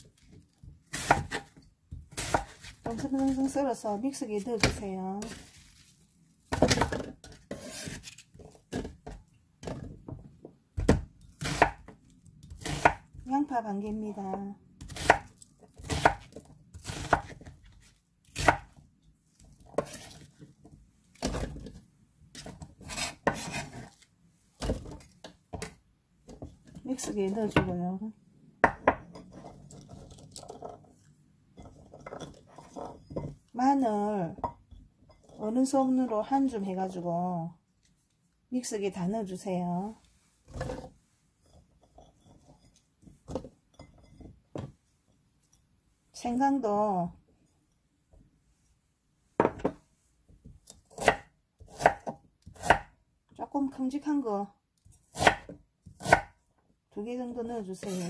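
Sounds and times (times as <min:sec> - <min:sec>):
knife chopping on wooden board: 0:00.9 - 0:03.3, 0:10.8 - 0:13.2, 0:14.8 - 0:18.7, 0:22.4 - 0:24.0, 0:28.6 - 0:29.0, 0:50.9 - 0:52.9, 0:55.1 - 0:56.3.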